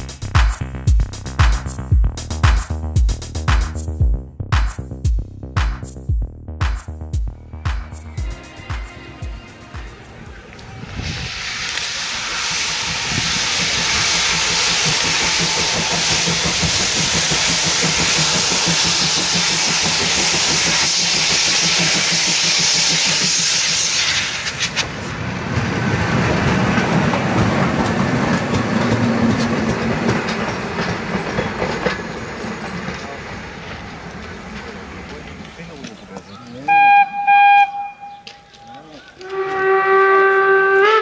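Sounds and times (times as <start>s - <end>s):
train running on track: 7.2s - 41.0s
steam locomotive hissing steam: 8.1s - 37.7s.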